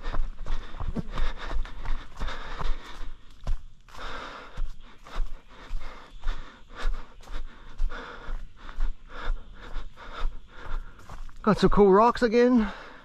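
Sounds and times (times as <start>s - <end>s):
footfalls on rocky trail: 0.0s - 4.2s
heavy rhythmic breathing: 0.0s - 11.5s, 12.6s - 13.0s.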